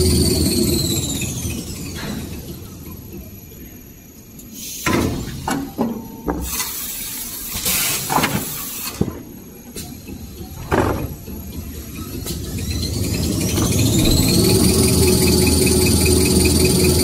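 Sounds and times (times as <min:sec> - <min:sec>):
machine running with low rumble: 0:00.0 - 0:04.4, 0:10.1 - 0:17.0.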